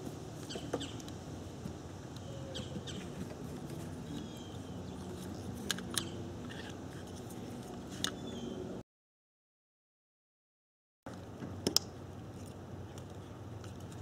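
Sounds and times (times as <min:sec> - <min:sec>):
faint background hum: 0:00.0 - 0:08.8.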